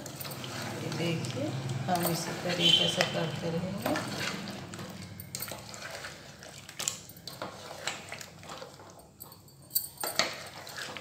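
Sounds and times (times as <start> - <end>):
spatula scraping a pot: 0.0 - 1.3, 2.4 - 9.0, 10.2 - 11.0.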